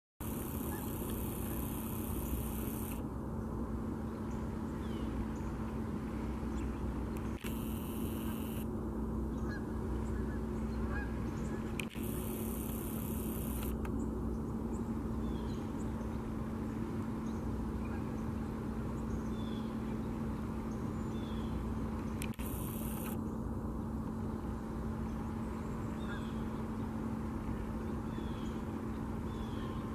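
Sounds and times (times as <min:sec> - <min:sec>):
steady background hum: 0:00.2 - 0:29.9
geese honking: 0:09.4 - 0:11.7.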